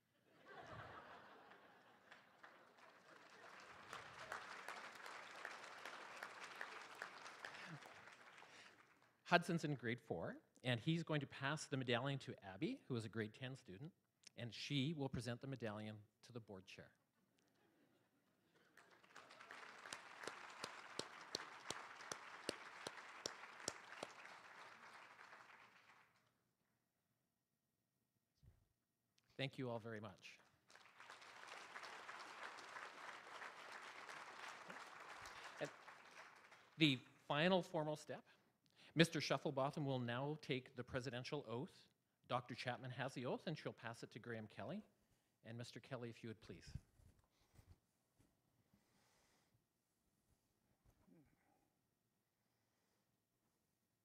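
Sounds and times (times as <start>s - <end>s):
audience applauding: 1.4s - 9.1s, 18.6s - 26.2s, 30.7s - 36.8s
nearby person clapping: 2.1s - 8.8s, 18.6s - 26.1s, 30.7s - 36.7s.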